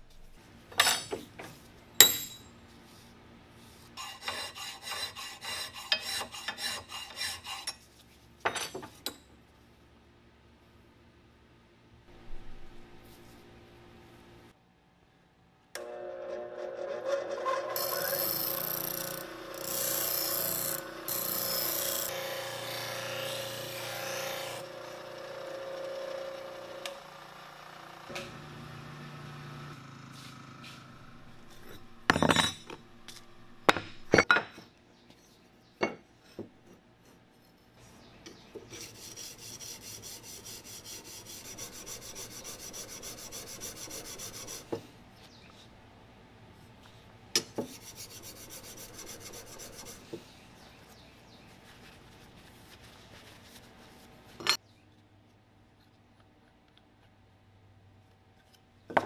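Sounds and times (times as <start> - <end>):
blade rubbing on sharpening stone: 4.0 - 7.9, 38.7 - 44.7, 47.6 - 50.1
bench grinder humming: 15.8 - 32.3, 38.8 - 44.7, 47.7 - 50.1.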